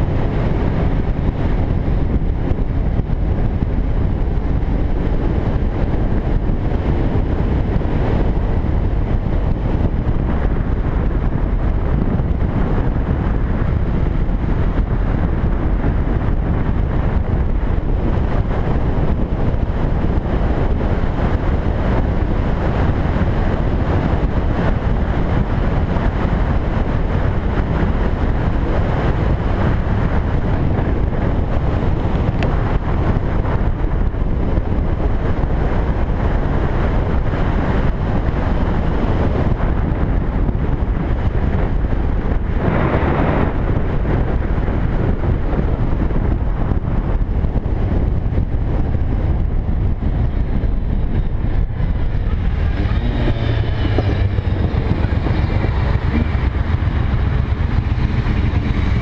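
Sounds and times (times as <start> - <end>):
motorcycle engine running: 0.0 - 59.0
wind buffeting microphone: 0.0 - 59.0.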